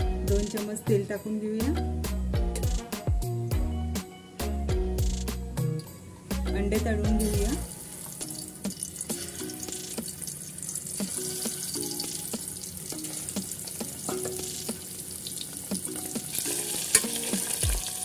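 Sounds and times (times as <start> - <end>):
eggs sizzling in hot oil: 7.2 - 18.0.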